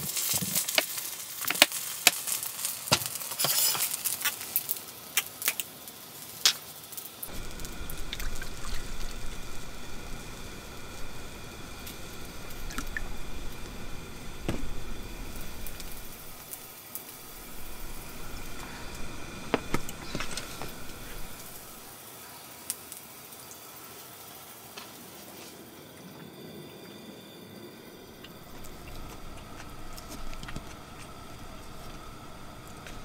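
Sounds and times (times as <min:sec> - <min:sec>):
liquid pouring into metal bowl: 0:07.5 - 0:09.8.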